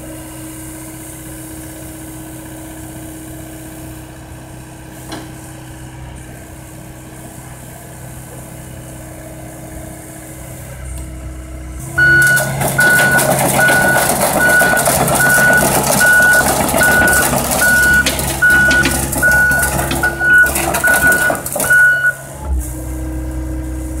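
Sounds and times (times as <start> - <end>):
diesel engine idling and revving: 0.0 - 24.0
track clatter: 11.8 - 22.6
travel alarm beeping: 11.9 - 22.3.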